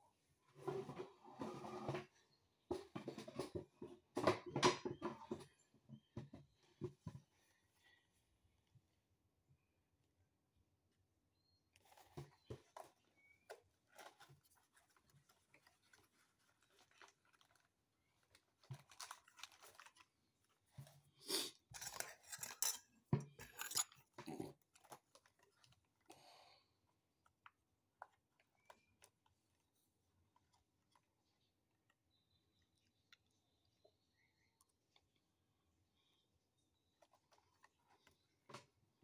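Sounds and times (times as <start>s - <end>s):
cardboard and plastic packaging crinkling: 11.8s - 22.3s.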